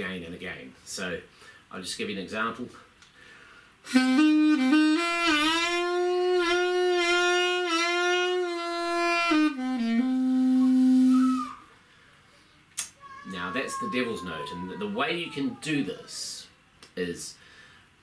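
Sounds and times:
wind instrument playing blues: 3.8 - 11.6.

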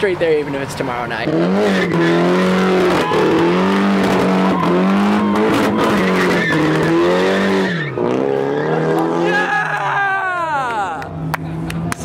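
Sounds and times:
engine revving high: 1.1 - 9.5
tyres squealing on pavement: 1.3 - 10.0.

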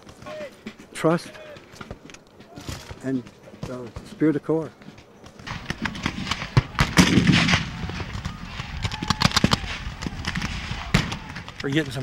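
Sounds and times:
musket shots crackling: 5.3 - 12.0.

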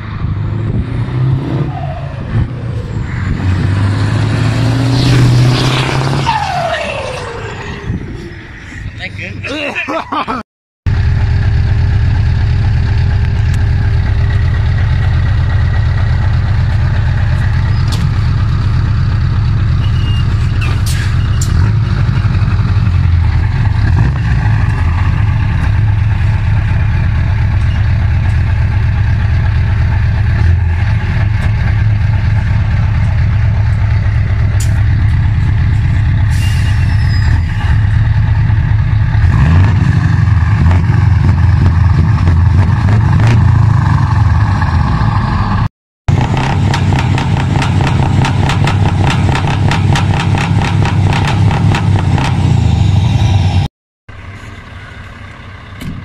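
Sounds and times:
diesel truck engine idling: 10.9 - 37.0, 54.1 - 56.0.

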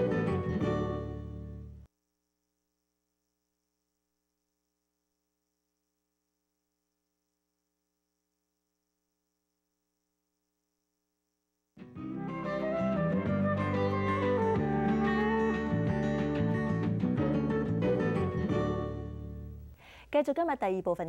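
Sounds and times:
music: 0.0 - 1.9, 11.8 - 19.8.

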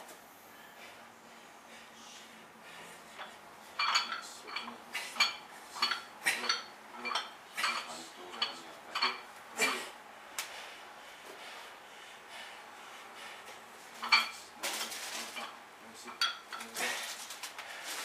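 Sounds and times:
barbell clanking: 3.2 - 9.8, 14.0 - 14.4.

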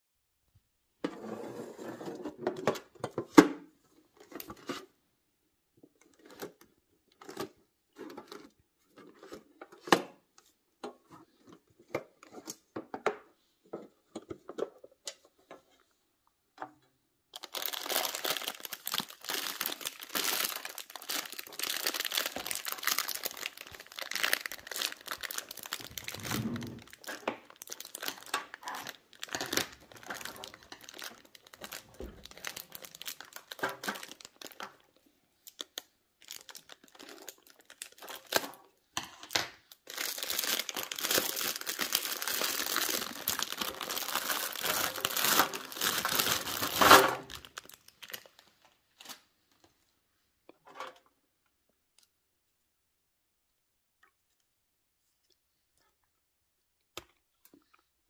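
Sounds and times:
plastic bag crinkling: 17.4 - 34.8, 35.4 - 38.5, 39.7 - 49.1.

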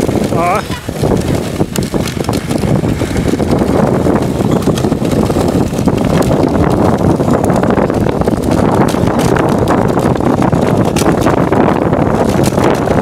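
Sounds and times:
sled runners scraping on snow: 0.0 - 13.0
wind buffeting microphone: 0.0 - 13.0.

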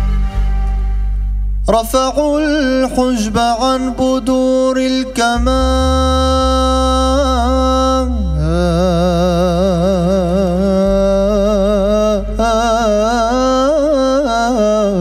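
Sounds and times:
instrumental accompaniment: 0.0 - 4.6
man singing melismatic phrase: 1.7 - 15.0.

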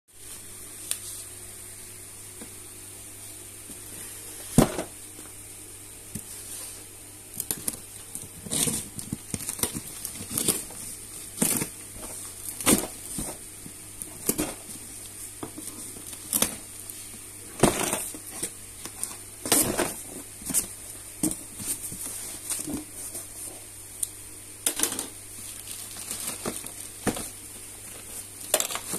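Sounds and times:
plastic wrapping rustling: 6.1 - 23.9, 24.6 - 28.9
packing tape tearing: 7.4 - 10.8.

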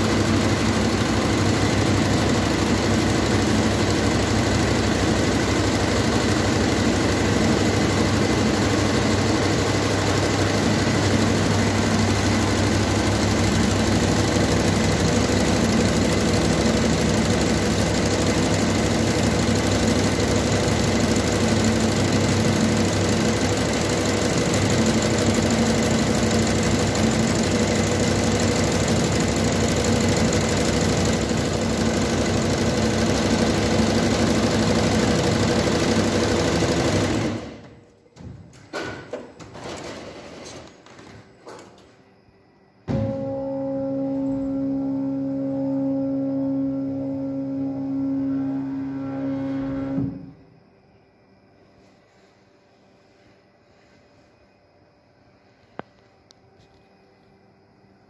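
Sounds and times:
embroidery machine stitching: 0.0 - 37.7.

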